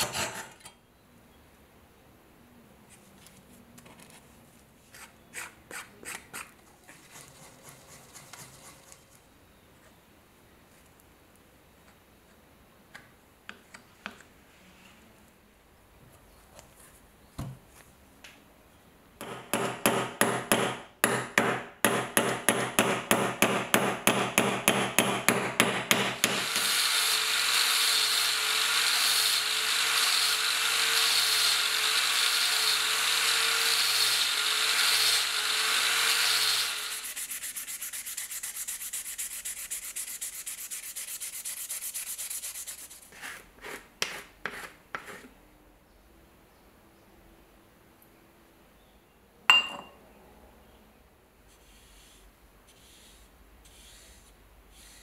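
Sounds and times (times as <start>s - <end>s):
rubbing strokes: 4.8s - 9.2s, 36.8s - 45.3s, 51.5s - 55.0s
angle grinder sanding wood: 26.2s - 43.8s.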